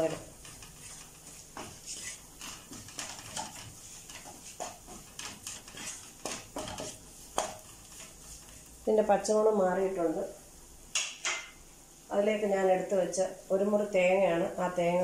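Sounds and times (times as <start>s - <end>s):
wooden spoon scraping frying pan: 0.0s - 9.3s.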